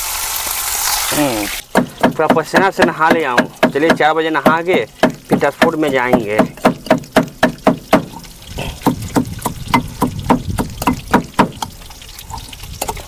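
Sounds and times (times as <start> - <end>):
rhythmic pounding: 1.6 - 11.8.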